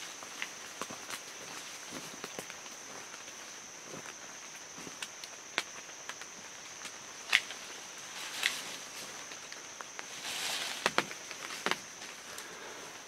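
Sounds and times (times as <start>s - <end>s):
brush rustling: 7.2s - 13.0s.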